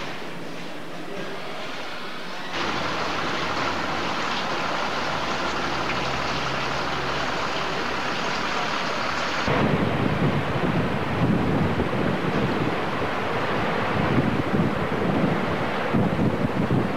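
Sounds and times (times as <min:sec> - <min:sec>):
waterfall rushing: 0:02.6 - 0:09.6
wind buffeting microphone: 0:09.4 - 0:16.9.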